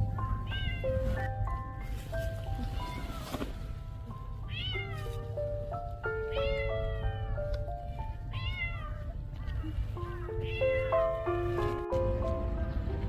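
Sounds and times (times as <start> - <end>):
slow melodic background music: 0.0 - 13.0
cat meowing: 0.4 - 1.0, 2.6 - 3.4, 4.4 - 5.3, 6.2 - 7.4, 8.2 - 11.2.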